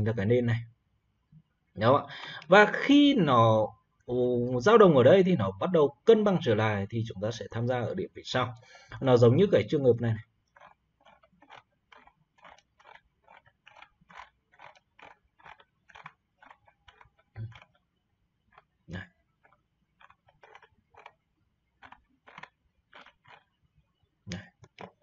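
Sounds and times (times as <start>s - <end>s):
computer mouse clicking: 10.6s - 17.8s, 21.8s - 23.4s, 24.3s - 25.0s.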